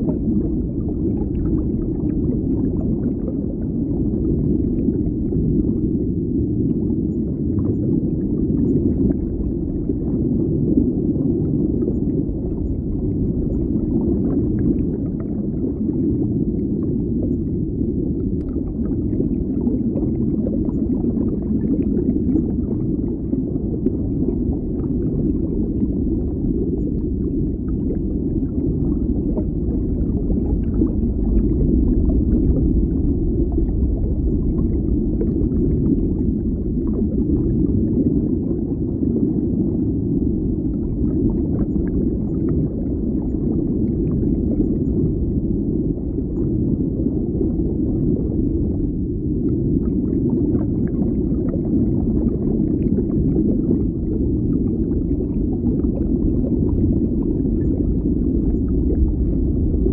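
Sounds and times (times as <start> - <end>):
muffled underwater bubbling: 0.0 - 59.9
faint pops and ticks: 18.4 - 18.6.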